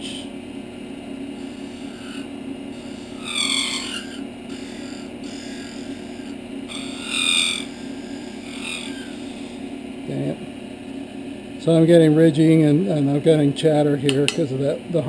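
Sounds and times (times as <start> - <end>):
wood lathe humming: 0.0 - 13.2
turning tool cutting wood: 1.3 - 9.7.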